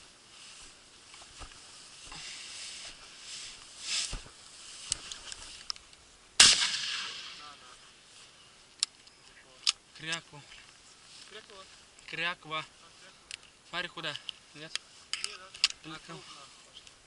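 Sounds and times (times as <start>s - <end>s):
footsteps rustling tall grass: 0.0s - 8.8s, 9.5s - 17.0s
shotgun shot: 6.4s - 7.6s.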